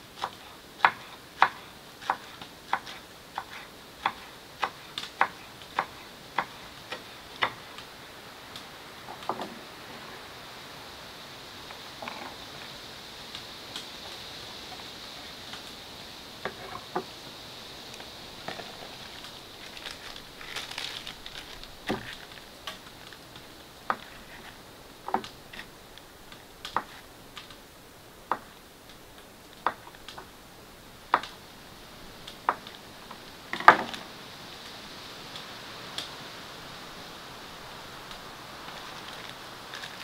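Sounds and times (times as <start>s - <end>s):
faint steady hiss: 0.0s - 40.0s
soft rustling: 11.6s - 27.6s, 31.3s - 40.0s.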